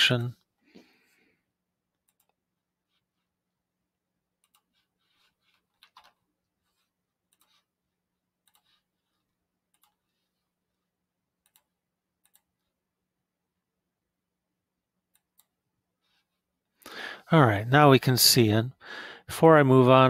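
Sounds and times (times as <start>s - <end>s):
mouse and keyboard clicks: 7.3s - 7.6s, 8.4s - 8.8s.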